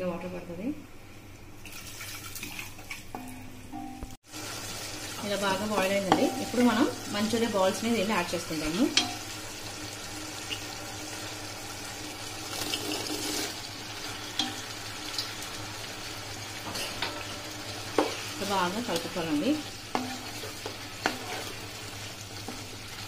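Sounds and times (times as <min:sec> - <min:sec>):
gravy sizzling and bubbling: 0:04.2 - 0:23.0
wooden spatula scraping pan: 0:19.9 - 0:23.0.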